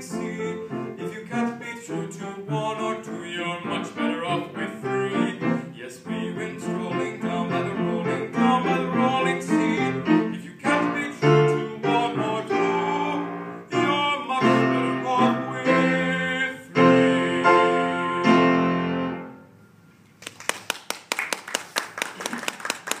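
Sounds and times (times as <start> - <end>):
man singing: 0.0 - 18.7
upright piano chords: 0.0 - 19.8
audience clapping: 20.2 - 23.0.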